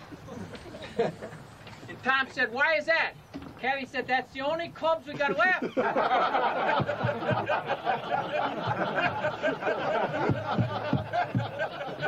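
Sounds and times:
group of people laughing: 0:00.2 - 0:01.5, 0:05.2 - 0:12.0.

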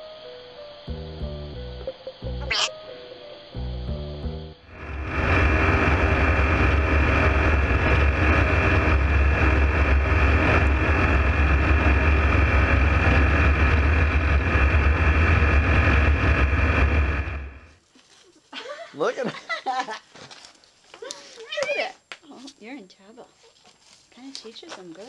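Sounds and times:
aircraft engine droning: 0:04.6 - 0:17.8.

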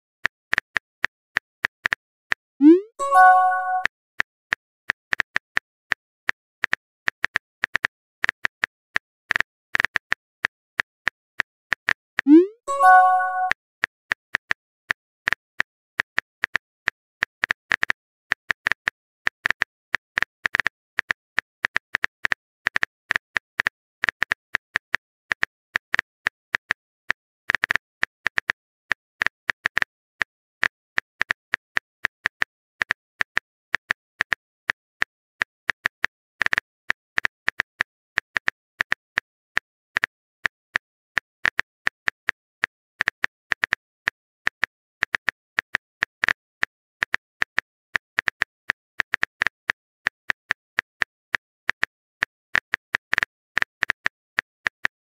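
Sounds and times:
phone keyboard typing clicks: 0:02.6 - 0:03.9, 0:12.2 - 0:13.6.

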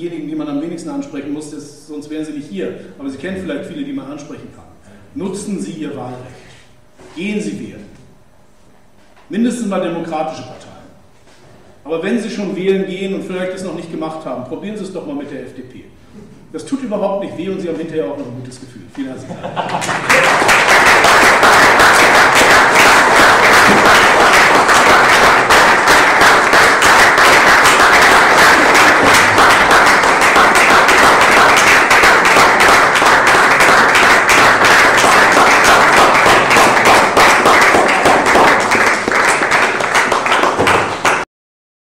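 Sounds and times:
audience applauding: 0:19.7 - 0:41.2.

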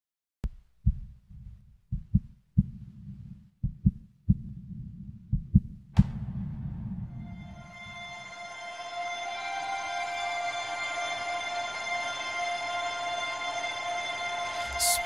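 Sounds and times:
heartbeat thumps: 0:00.4 - 0:07.1
low rumble: 0:00.9 - 0:08.3.

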